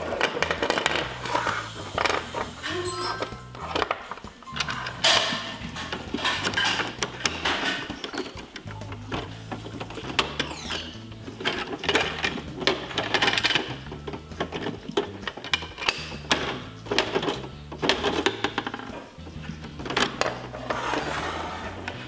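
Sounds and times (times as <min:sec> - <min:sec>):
background music: 0:00.0 - 0:22.0
hard plastic clicks and rattles: 0:03.6 - 0:20.5.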